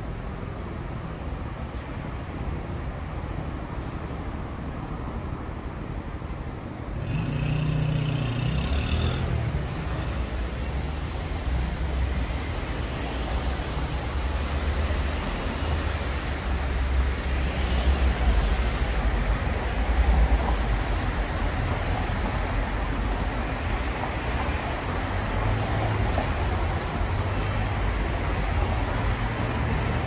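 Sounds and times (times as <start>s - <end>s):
cars passing close by: 6.9s - 30.0s
tyres hissing on wet road: 7.0s - 30.0s.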